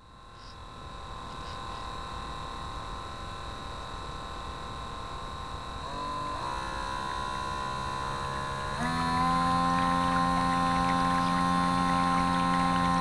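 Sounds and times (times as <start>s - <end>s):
electric motor whining: 5.5s - 13.0s.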